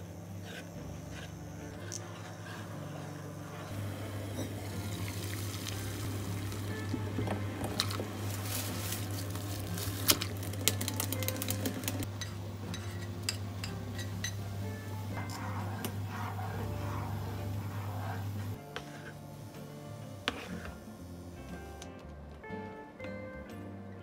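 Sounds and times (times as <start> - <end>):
noodles boiling in pot: 0.0 - 21.7
quiet background music: 0.0 - 24.0
wooden spoon stirring sauce: 20.2 - 20.8.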